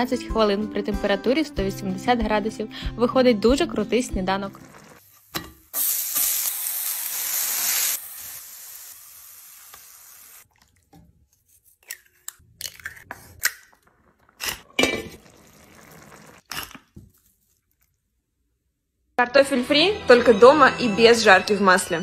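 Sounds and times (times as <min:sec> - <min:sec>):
vegetables sizzling in a pan: 0:04.5 - 0:10.4
eggs being cracked: 0:11.7 - 0:15.2, 0:16.4 - 0:17.0.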